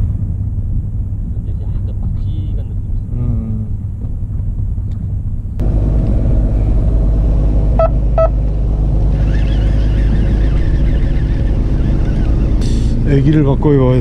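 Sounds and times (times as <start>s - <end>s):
boat engine droning: 5.6s - 14.0s.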